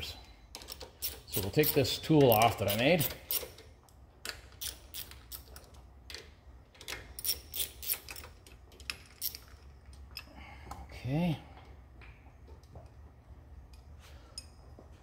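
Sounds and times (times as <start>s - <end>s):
socket wrench clicking on bolts: 0.5s - 9.6s.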